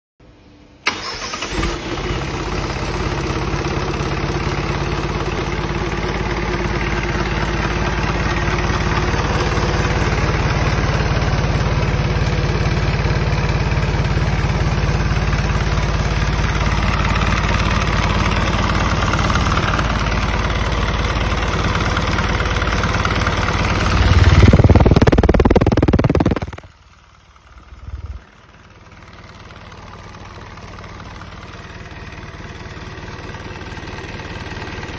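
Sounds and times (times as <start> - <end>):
diesel truck engine running: 0.8 - 34.9.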